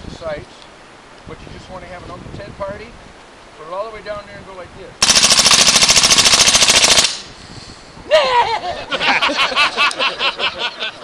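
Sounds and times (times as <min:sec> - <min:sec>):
submachine gun burst: 0:05.0 - 0:07.4
man laughing loudly: 0:08.0 - 0:11.0.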